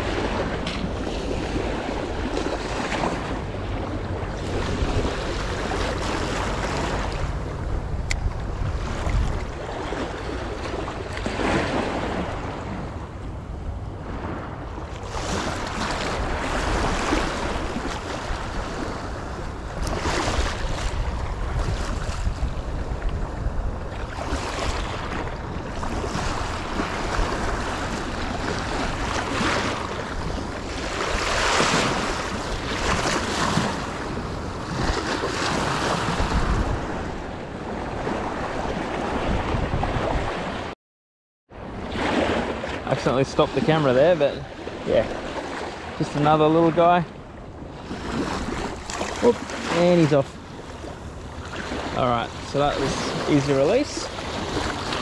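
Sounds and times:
waves splashing over rocks: 0.0 - 12.7, 24.0 - 37.1, 41.9 - 47.2, 47.8 - 55.0
wind rumbling on microphone: 0.0 - 40.7.

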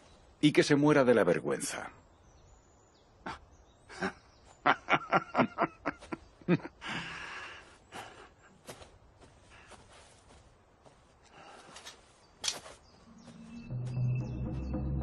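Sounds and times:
man laughing: 3.2 - 7.6.

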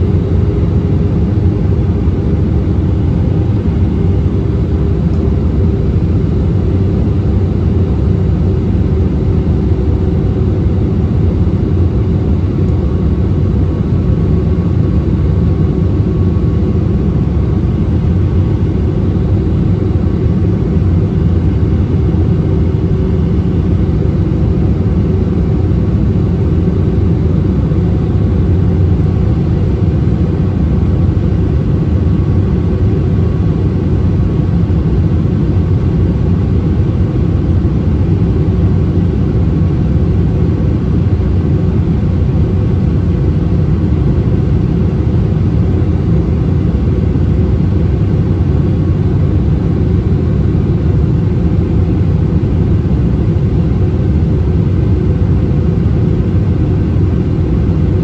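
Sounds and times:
jet engine and airflow rumble: 0.0 - 58.0.

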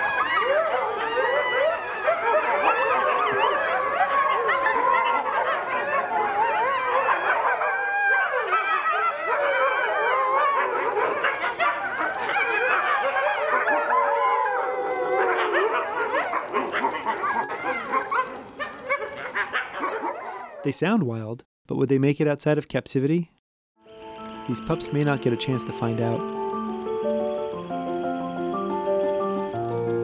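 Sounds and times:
wolves howling in chorus: 0.0 - 20.6.

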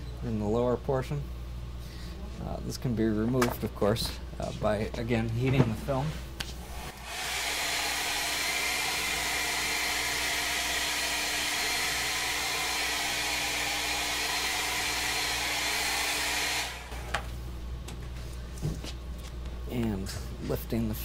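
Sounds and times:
hair dryer blowing: 6.6 - 17.4.

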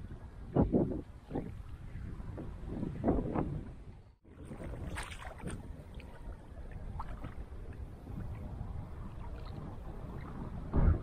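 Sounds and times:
low rumbling noise: 5.6 - 11.0.

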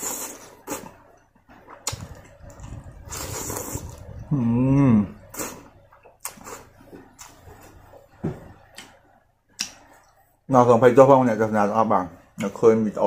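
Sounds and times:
man slurping noodles: 0.0 - 1.0, 1.8 - 7.7
wet crunchy chewing: 0.0 - 10.1
man humming mmm: 3.8 - 5.6.

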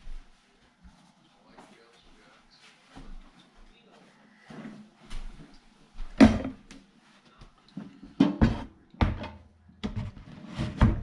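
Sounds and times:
sink knocking and clunking: 6.2 - 6.7, 8.1 - 11.0.

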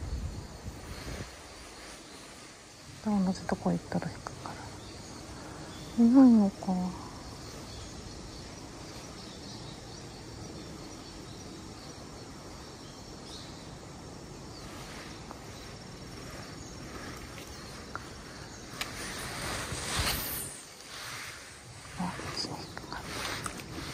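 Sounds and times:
insects chirring: 0.0 - 23.9
faint clicks: 16.9 - 19.1.

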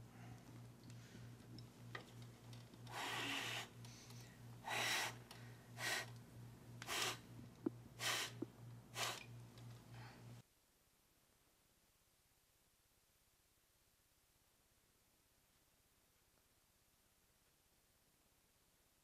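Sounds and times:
low steady hum: 0.0 - 11.8.

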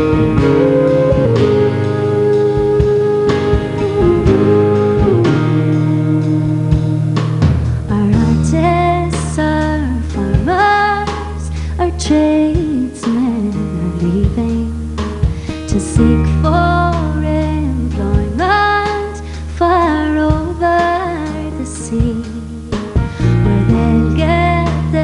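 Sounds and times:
band accompaniment with low bass: 0.0 - 25.0
woman singing folk ballad: 0.0 - 25.0.

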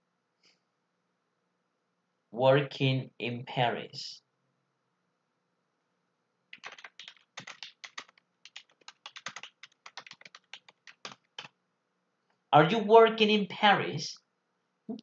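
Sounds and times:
keyboard typing: 6.5 - 11.5.

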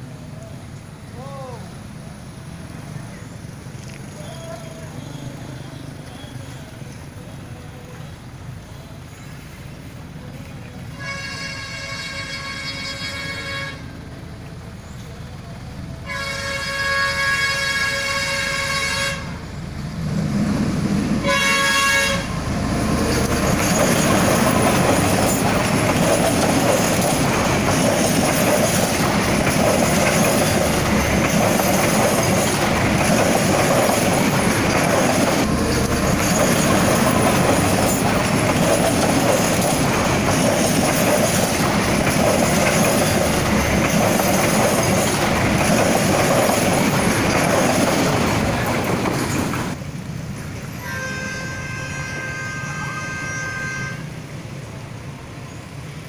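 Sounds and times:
train wheels on rails: 0.0 - 56.0
diesel locomotive horn blasts: 10.9 - 14.1, 16.0 - 19.6, 21.2 - 22.4, 50.7 - 54.3.

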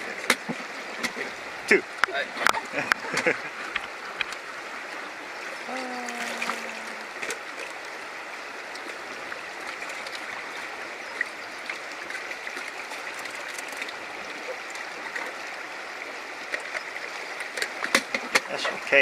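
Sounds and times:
water rushing over rocks: 0.0 - 19.0
small knocks and splashes: 5.7 - 8.0, 8.6 - 15.5, 16.4 - 18.8.

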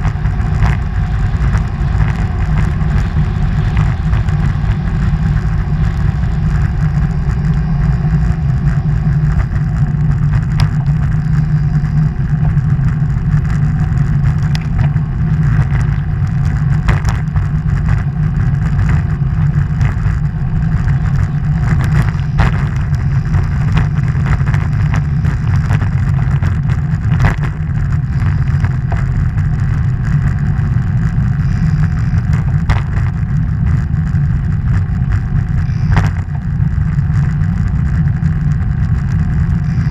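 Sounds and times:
wind buffeting microphone: 0.0 - 39.9
sharp knocks from road bumps: 14.4 - 18.1, 20.9 - 29.2, 32.3 - 33.8, 35.9 - 36.4.

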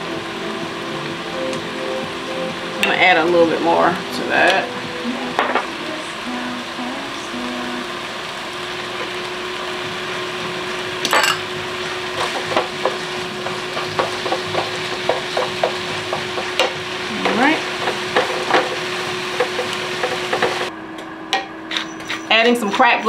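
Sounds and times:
meat sizzling in pans: 0.0 - 20.7
spatulas scraping pans: 12.2 - 20.7, 21.7 - 23.0.

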